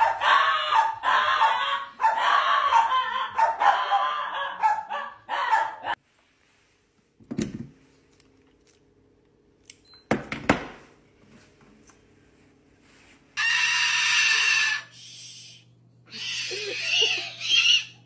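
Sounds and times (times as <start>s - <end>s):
cockatoo screeching: 13.4s - 18.0s.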